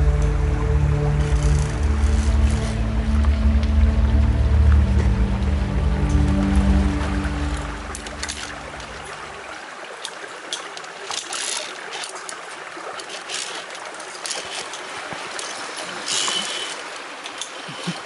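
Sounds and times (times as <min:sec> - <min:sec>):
stream running: 0:00.0 - 0:18.0
carabiners clinking on cable: 0:10.6 - 0:18.0.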